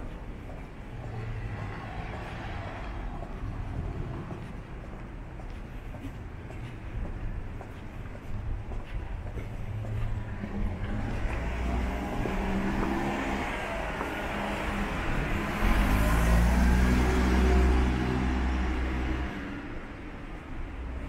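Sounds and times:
car passing by: 0:00.8 - 0:04.8, 0:09.7 - 0:20.0.

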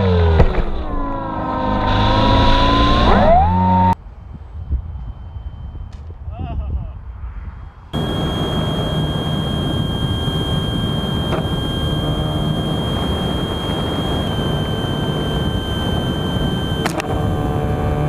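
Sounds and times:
motor and propeller drone: 0:00.0 - 0:04.0, 0:08.0 - 0:18.0
high whine: 0:00.0 - 0:06.3, 0:07.0 - 0:18.0
wind rushing over camera: 0:01.9 - 0:18.0.

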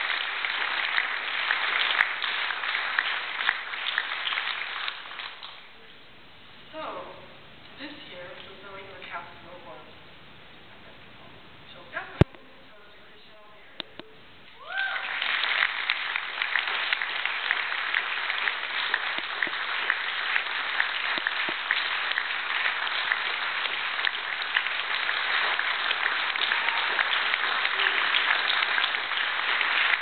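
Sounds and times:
audience applauding: 0:00.0 - 0:05.6, 0:14.6 - 0:30.0.

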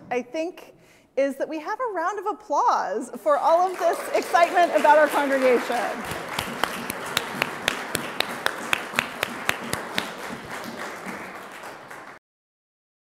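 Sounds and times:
congregation applauding: 0:03.5 - 0:12.2
close hand claps: 0:03.6 - 0:12.2.

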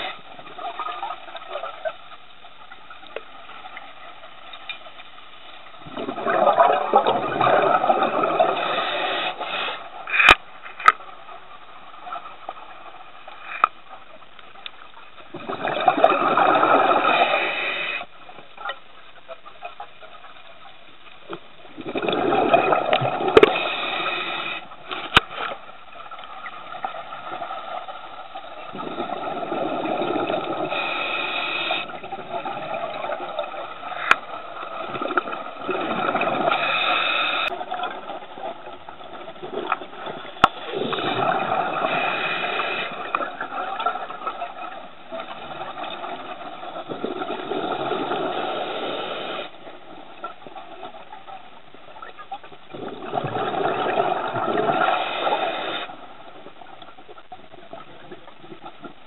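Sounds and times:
underwater exhaled bubbles: 0:05.6 - 0:11.0, 0:15.2 - 0:18.8, 0:21.3 - 0:59.0.

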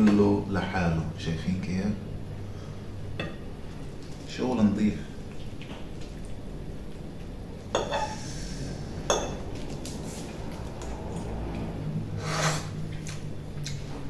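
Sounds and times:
scraping food on plate: 0:07.8 - 0:08.8, 0:12.2 - 0:12.8.

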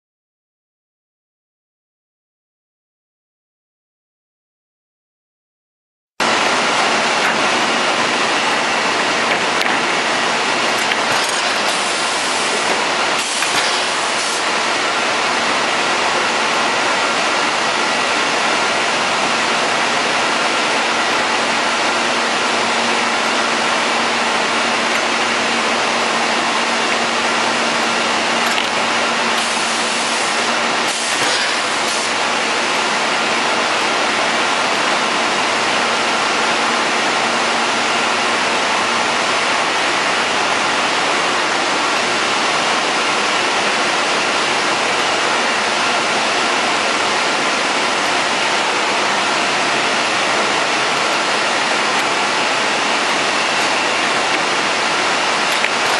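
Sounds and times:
sanding machine rushing noise: 0:10.3 - 0:16.8.

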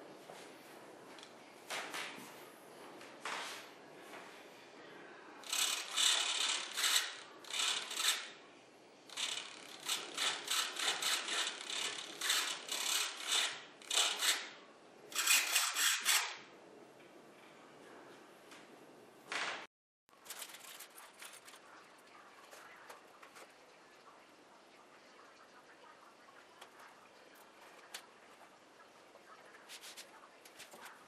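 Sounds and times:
mechanism ratcheting: 0:05.4 - 0:08.3, 0:09.1 - 0:14.4.

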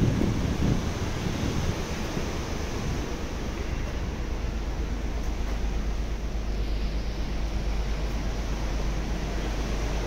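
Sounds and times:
ship low rumble and rushing: 0:00.0 - 0:10.0.

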